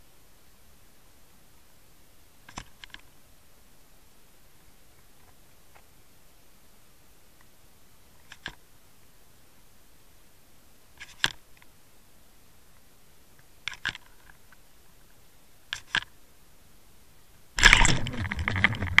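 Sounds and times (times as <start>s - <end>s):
rush of churning water: 17.6s - 19.0s.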